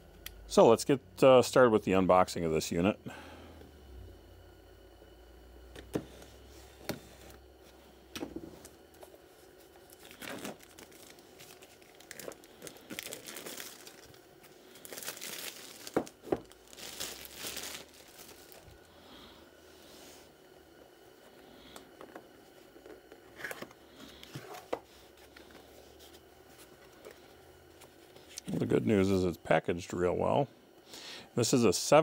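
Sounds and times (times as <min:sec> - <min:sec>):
plastic wrap crinkling and tearing: 0:09.8 - 0:18.9.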